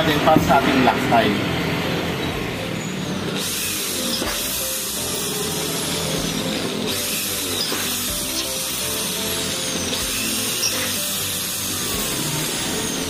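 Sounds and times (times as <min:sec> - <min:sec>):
electric drill boring through aluminium: 0:01.9 - 0:13.0.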